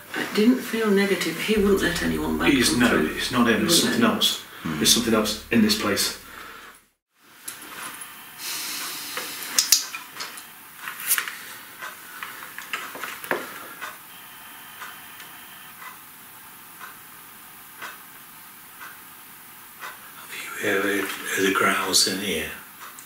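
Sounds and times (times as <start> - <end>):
steady recorder hiss: 1.6 - 6.7, 7.6 - 23.0.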